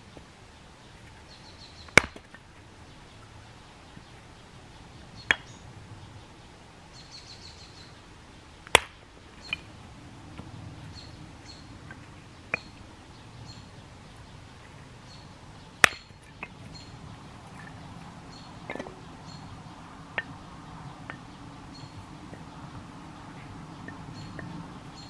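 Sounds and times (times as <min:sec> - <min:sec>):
bird chirping: 0:00.0 - 0:25.0
hatchet chopping wood: 0:01.9 - 0:02.4, 0:08.7 - 0:09.6, 0:15.8 - 0:16.6.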